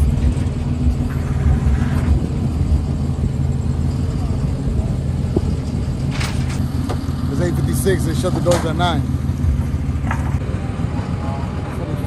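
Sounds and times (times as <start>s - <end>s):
road noise: 0.0s - 12.0s
vehicle engine rumble: 0.0s - 12.0s.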